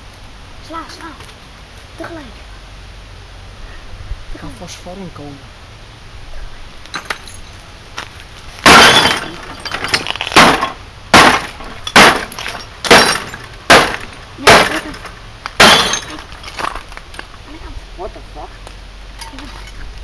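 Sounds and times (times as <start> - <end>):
hammer smashing television: 8.6 - 16.8
plastic and glass cracking: 8.6 - 17.3.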